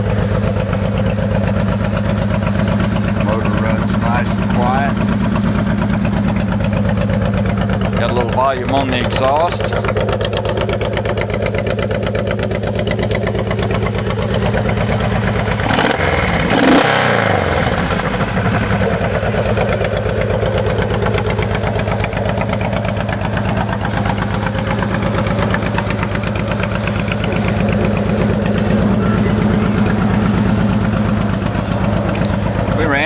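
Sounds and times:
motorcycle engine idling and revving: 0:00.0 - 0:33.0.

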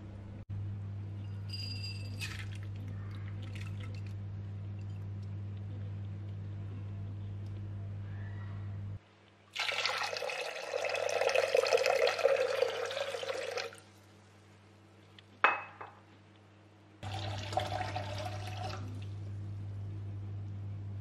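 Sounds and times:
sharp clink: 0:01.2 - 0:02.3
water pouring into a pot: 0:09.6 - 0:13.8, 0:17.0 - 0:19.1.

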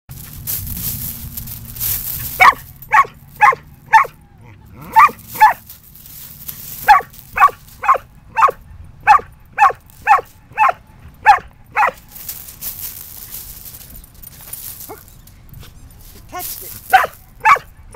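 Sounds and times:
dog barking sharply: 0:02.4 - 0:04.2, 0:04.8 - 0:05.6, 0:06.8 - 0:12.0.

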